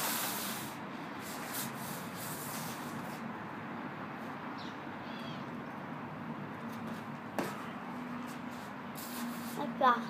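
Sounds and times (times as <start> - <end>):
outdoor background hiss: 0.0 - 10.0
bird chirping: 4.6 - 5.8
gym mat scraping over concrete: 8.3 - 9.7.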